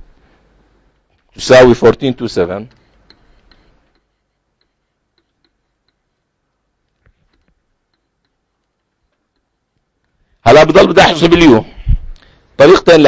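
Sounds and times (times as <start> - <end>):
stylus tapping on tablet screen: 2.7 - 10.0.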